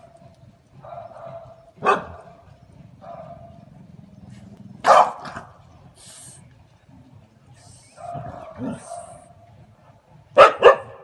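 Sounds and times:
dog barking: 0:00.8 - 0:02.3, 0:03.0 - 0:03.5, 0:04.8 - 0:05.4, 0:08.0 - 0:09.3, 0:10.4 - 0:11.0.

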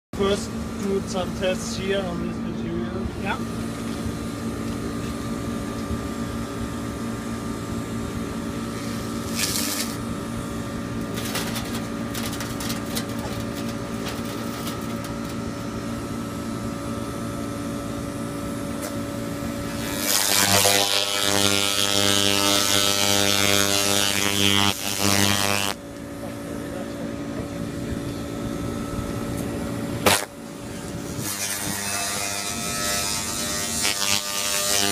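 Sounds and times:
machine hum: 0:00.2 - 0:34.9
harsh buzzing hiss: 0:08.6 - 0:16.2, 0:18.4 - 0:25.8, 0:30.0 - 0:34.9
sharp crackles: 0:09.3 - 0:10.0, 0:19.7 - 0:25.8, 0:30.0 - 0:30.3.

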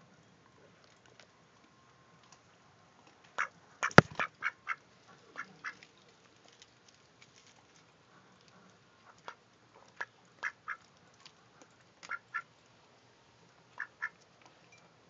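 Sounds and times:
duck quacking quietly: 0:03.4 - 0:05.8, 0:13.8 - 0:14.2.

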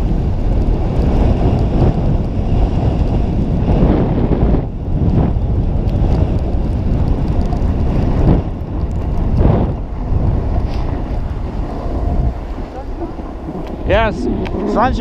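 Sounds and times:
wind buffeting microphone: 0:00.0 - 0:15.0
skis scraping on snow: 0:05.9 - 0:15.0.

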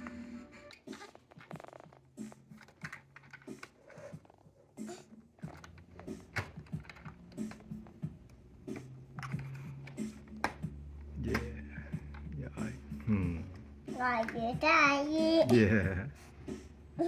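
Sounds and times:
plastic toy parts clicking: 0:02.5 - 0:04.0, 0:05.4 - 0:10.6.

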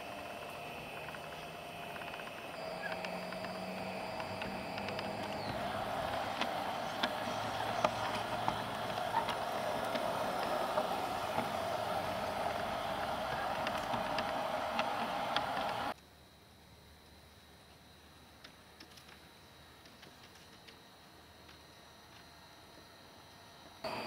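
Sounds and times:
clicks over rail joints: 0:00.0 - 0:15.9
model train motor and wheels humming: 0:00.0 - 0:16.0, 0:18.4 - 0:24.0.

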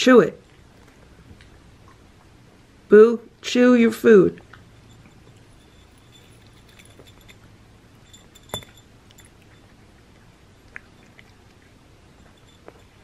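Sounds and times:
cat licking and mouth sounds: 0:09.0 - 0:13.0.

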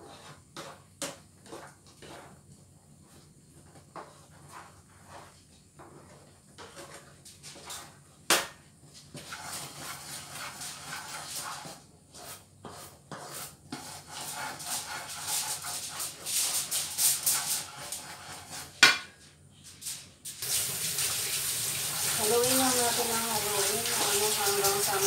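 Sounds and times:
mixture simmering: 0:00.0 - 0:08.2, 0:20.4 - 0:25.0
wooden spatulas stirring and scraping: 0:00.0 - 0:19.9, 0:21.9 - 0:25.0.

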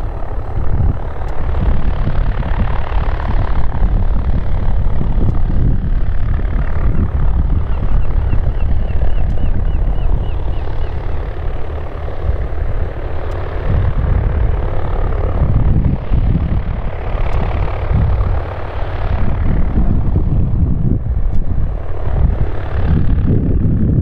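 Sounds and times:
propeller plane engine rumbling: 0:00.0 - 0:24.0.

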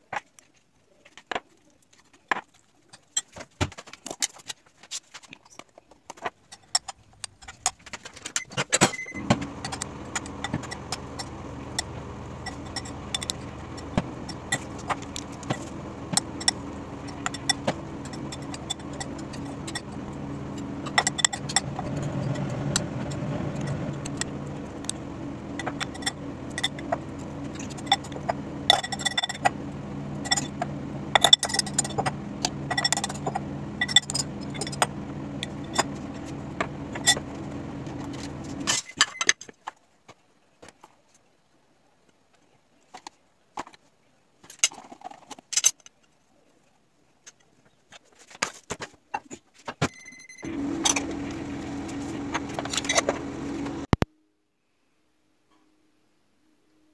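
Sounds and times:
low hum: 0:09.1 - 0:38.7, 0:50.4 - 0:54.0.

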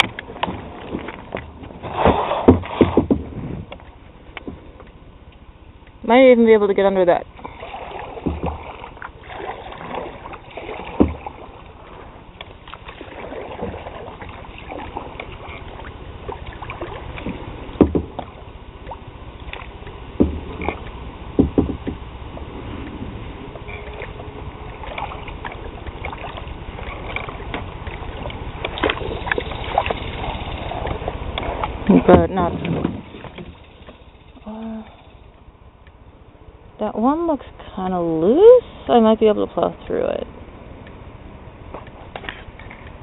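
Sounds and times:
paddle strokes in water: 0:00.0 - 0:05.5, 0:07.1 - 0:35.3, 0:41.7 - 0:43.0
sharp knocks: 0:02.0 - 0:03.4, 0:08.2 - 0:08.6, 0:17.8 - 0:18.3, 0:20.2 - 0:20.8, 0:21.4 - 0:22.0.

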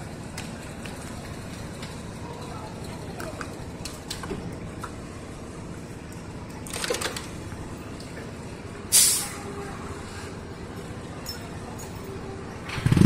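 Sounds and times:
short loud hiss: 0:08.9 - 0:09.4.

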